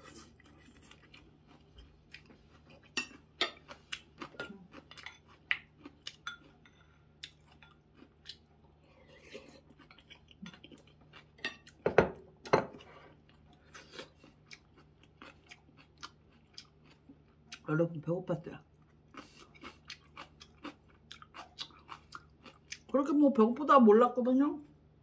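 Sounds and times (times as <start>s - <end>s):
person chewing: 0.0s - 11.8s, 12.7s - 17.7s, 18.7s - 22.9s
chopsticks and spoon clinking dishes: 6.2s - 6.9s.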